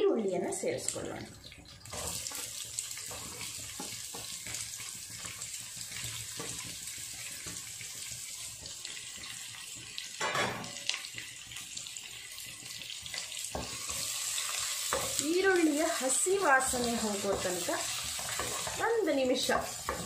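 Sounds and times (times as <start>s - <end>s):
oil sizzling in a pan: 0.1s - 20.0s
wooden spatula scraping pan: 1.9s - 4.6s, 13.5s - 20.0s.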